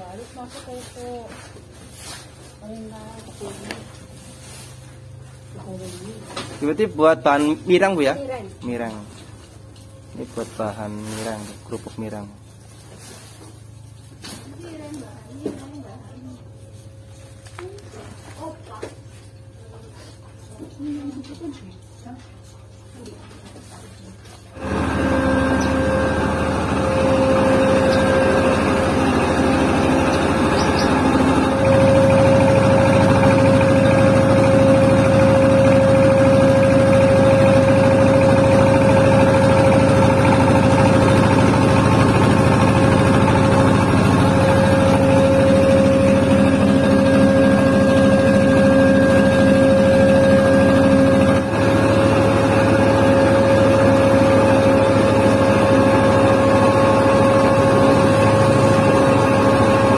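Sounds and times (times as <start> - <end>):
flour mill engine droning: 0.0 - 59.9
mill whine: 24.5 - 59.9.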